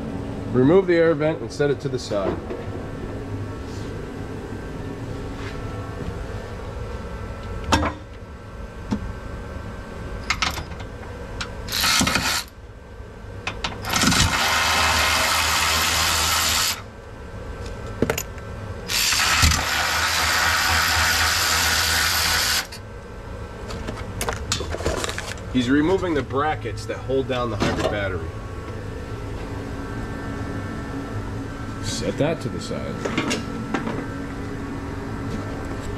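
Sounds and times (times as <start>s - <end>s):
electric ratchet spinning: 11.7s - 12.6s, 13.8s - 16.8s, 18.9s - 22.8s.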